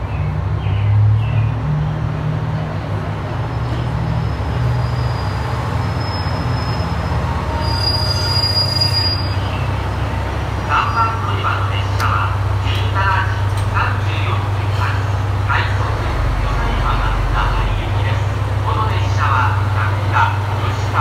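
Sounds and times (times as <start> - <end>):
diesel railcar engine rumble: 0.0 - 21.0
high brake squeal: 4.2 - 9.5.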